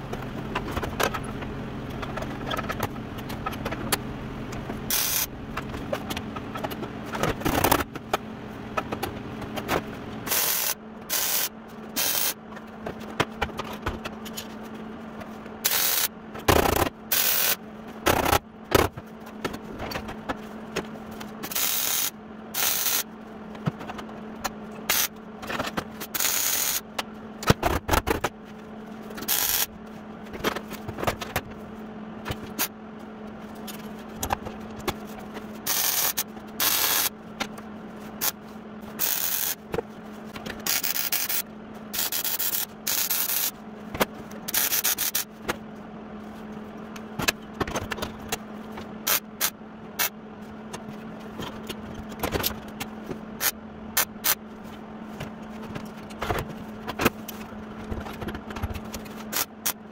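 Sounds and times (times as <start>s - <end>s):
power tool on sheet steel: 4.9s - 5.3s, 10.3s - 12.4s, 15.6s - 16.1s, 17.1s - 17.6s, 21.5s - 23.0s, 26.2s - 26.8s, 35.7s - 37.1s, 39.0s - 39.6s.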